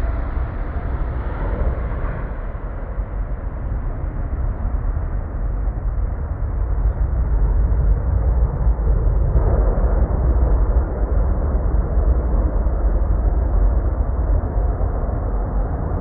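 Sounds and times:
jet engines roaring: 0.0s - 16.0s.

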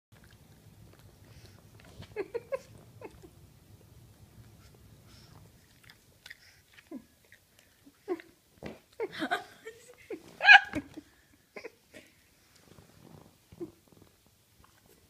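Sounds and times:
puppy licking and chewing: 0.2s - 9.0s
faint low hum: 0.2s - 15.0s.

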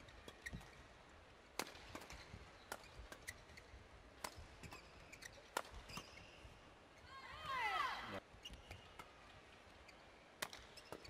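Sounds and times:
rackets striking shuttlecock: 1.6s - 3.4s, 4.2s - 6.1s.

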